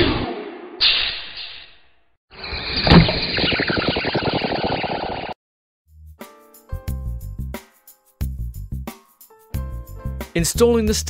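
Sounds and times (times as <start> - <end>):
music: 5.9 - 11.0.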